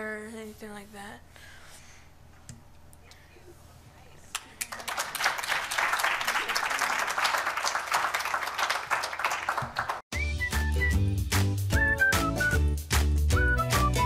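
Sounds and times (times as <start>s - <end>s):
audience applauding: 4.6s - 10.0s.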